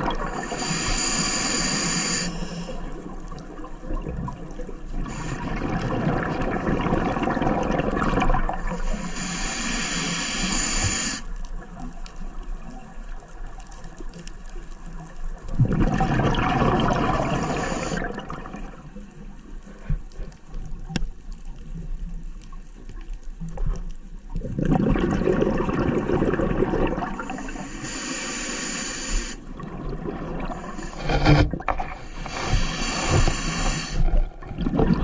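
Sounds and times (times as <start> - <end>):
diver breathing through a regulator: 0.0 - 3.1, 5.0 - 5.9, 8.5 - 11.3, 16.9 - 18.3, 27.1 - 29.6, 30.4 - 34.3
exhaled bubbles gurgling: 0.0 - 13.5, 14.8 - 19.2, 24.3 - 28.3, 29.2 - 35.0.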